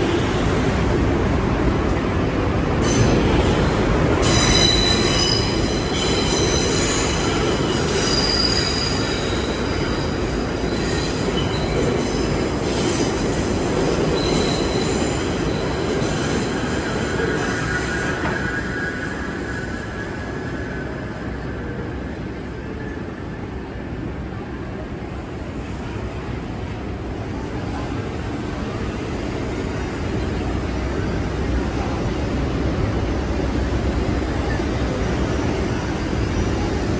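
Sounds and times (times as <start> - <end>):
train wheels rumbling on rails: 0.0 - 36.9
high-pitched wheel squeal: 4.2 - 10.0.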